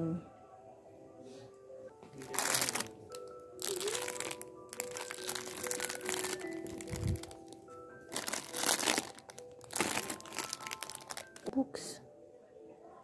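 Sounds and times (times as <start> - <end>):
soft background music: 0.0 - 13.0
plastic packaging crinkling: 2.1 - 11.5.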